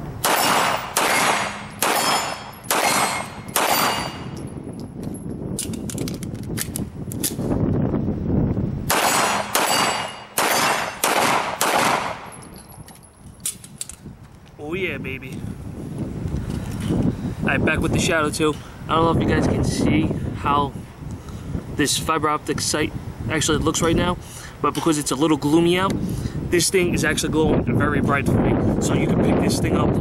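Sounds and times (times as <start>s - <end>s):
pistol shots: 0.2s - 4.4s, 8.9s - 12.3s
steel target plates ringing: 0.3s - 4.6s, 9.0s - 11.0s.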